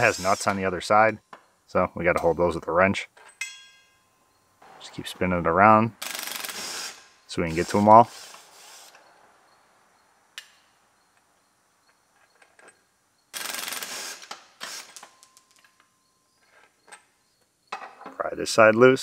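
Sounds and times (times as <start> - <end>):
cordless power tool spinning bolts: 6.0 - 7.0, 13.4 - 15.0.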